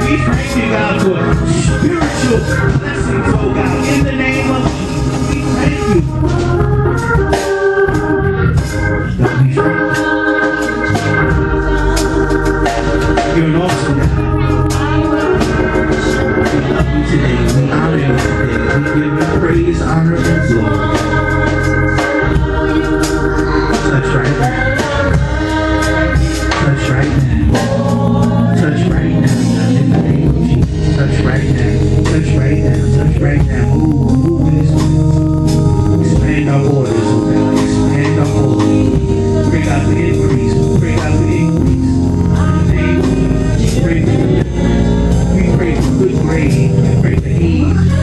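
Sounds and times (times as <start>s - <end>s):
gospel organ music: 0.0s - 48.0s.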